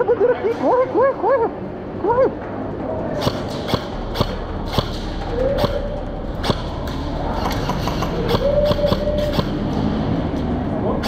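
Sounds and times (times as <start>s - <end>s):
airsoft shots echoing: 3.2s - 9.6s.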